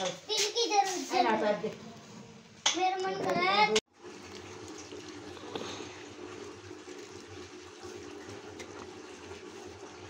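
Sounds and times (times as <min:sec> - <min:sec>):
liquid pouring into bowl: 0:03.9 - 0:10.0.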